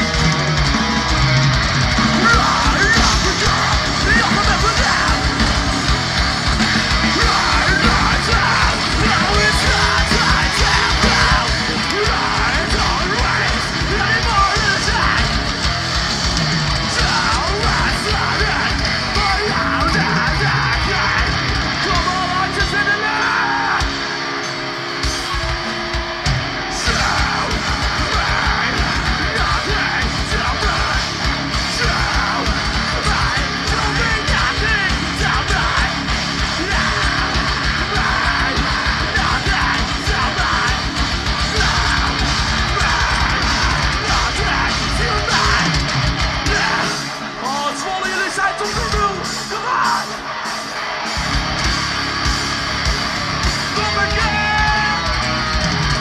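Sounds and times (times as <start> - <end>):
heavy metal band playing: 0.0 - 56.0
yelled vocals: 0.0 - 56.0.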